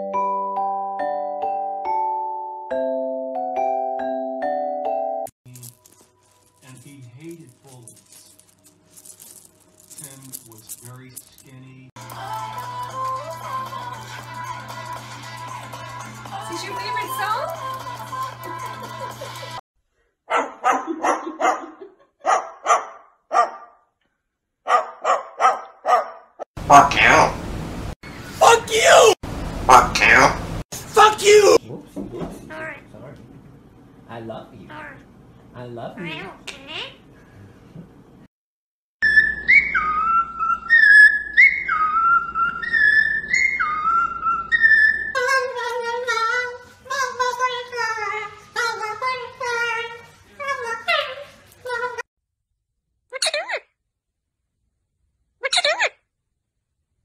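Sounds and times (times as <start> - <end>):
background music: 12.0 - 19.6
cockatoo imitating dog barks: 20.3 - 21.7, 24.7 - 27.4, 29.7 - 30.4
cockatiel whistling a tune: 39.0 - 45.2.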